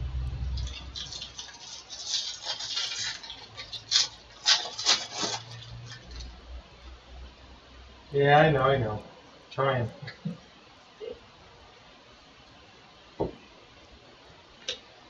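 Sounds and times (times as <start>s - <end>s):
foil wrapper crinkling and tearing: 0.6s - 6.4s.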